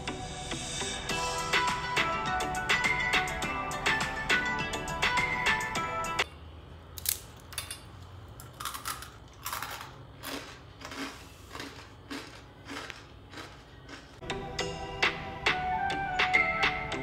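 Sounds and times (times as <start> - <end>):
background music: 0.0 - 6.2, 14.2 - 17.0
crunching crisp snack: 8.2 - 14.2.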